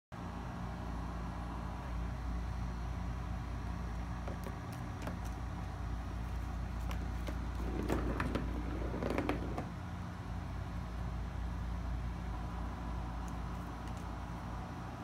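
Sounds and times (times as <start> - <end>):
steady low hum: 0.2 - 15.0
ball rattling in plastic track: 6.8 - 9.7.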